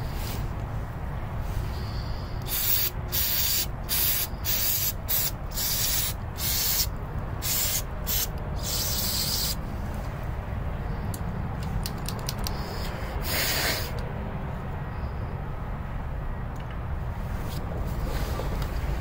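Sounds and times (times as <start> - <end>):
aerosol spray hissing bursts: 2.4 - 9.6, 12.6 - 14.0.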